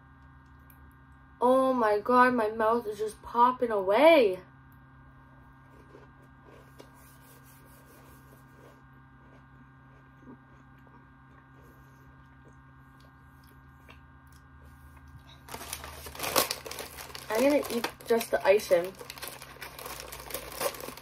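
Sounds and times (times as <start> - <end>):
electrical hum: 0.0 - 21.0
plastic wrapper crinkling: 15.2 - 21.0
popping candy crackling: 15.2 - 21.0.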